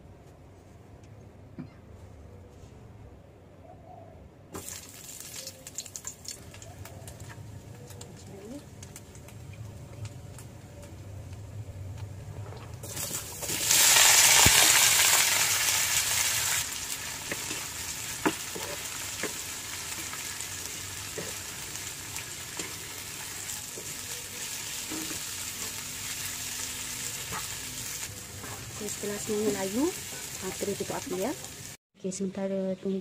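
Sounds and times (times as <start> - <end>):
food sizzling in hot oil: 4.6 - 7.4, 12.8 - 31.8.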